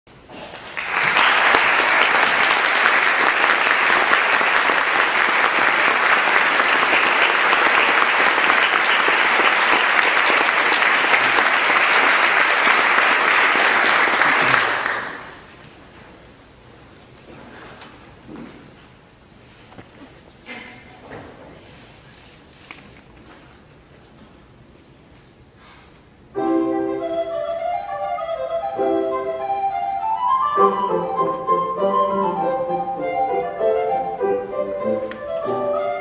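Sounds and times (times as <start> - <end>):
audience applauding: 0.4 - 15.6.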